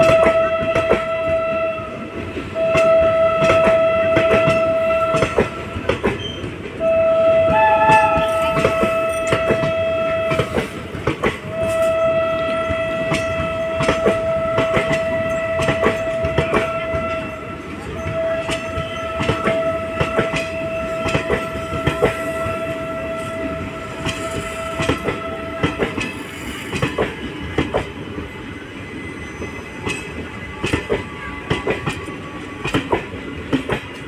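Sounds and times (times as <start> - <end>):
train horn blasts: 0.0 - 26.5
train wheels clicking over rail joints: 2.2 - 6.8, 7.4 - 28.4, 29.2 - 34.0.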